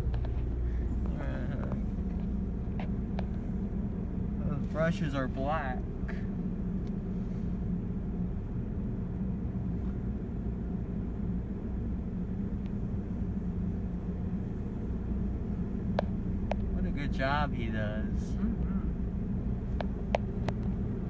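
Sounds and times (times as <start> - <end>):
car wash machinery: 0.0 - 7.9
car engine idling: 0.0 - 21.0.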